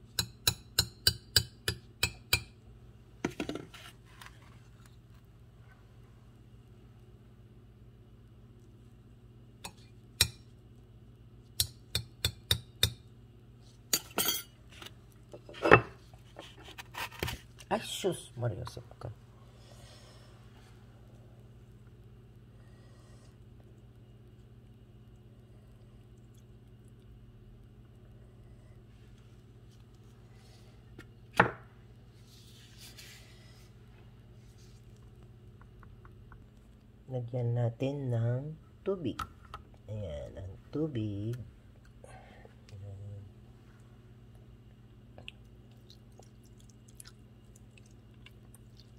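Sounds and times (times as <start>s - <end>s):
low steady hum: 0.0s - 48.9s
metal spoon clinking on pot and glass: 14.0s - 14.5s.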